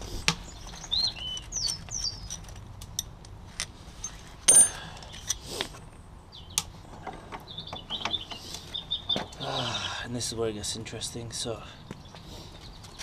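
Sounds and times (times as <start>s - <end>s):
birds chirping: 0.0s - 2.6s, 4.0s - 13.0s
ringing metal clink: 4.0s - 5.4s.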